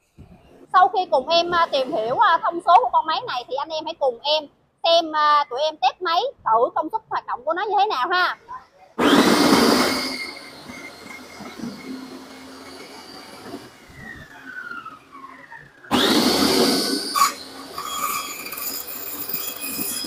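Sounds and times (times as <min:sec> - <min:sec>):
saw motor whining: 0:08.3 - 0:20.0.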